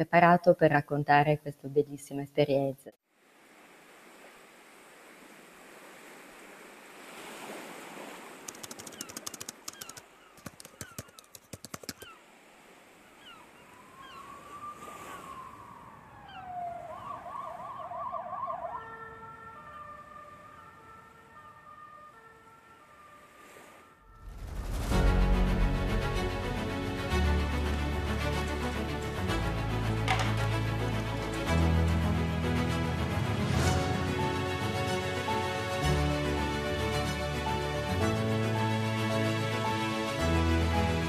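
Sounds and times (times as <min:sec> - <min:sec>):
quick clicks: 0:08.4 - 0:12.1
siren wailing and warbling: 0:13.6 - 0:24.2.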